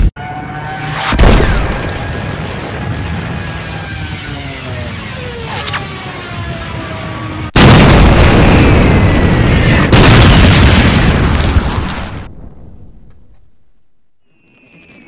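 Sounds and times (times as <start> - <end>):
loud explosion blasts: 7.5 - 13.1.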